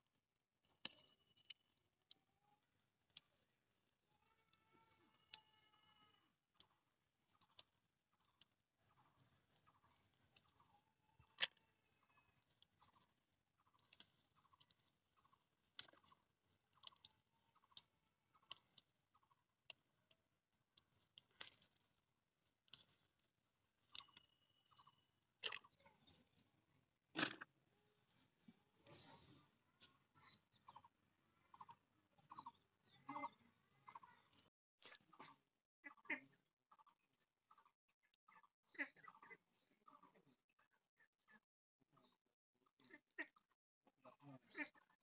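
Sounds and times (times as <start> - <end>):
high bird chirps: 8.8 - 10.8.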